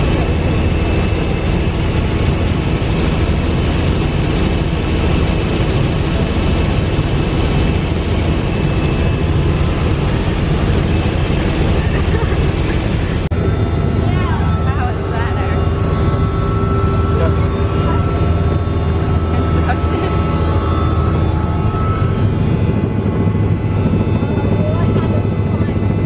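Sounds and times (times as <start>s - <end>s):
helicopter engine and rotor drone: 0.0s - 26.0s
thin whines: 6.5s - 26.0s.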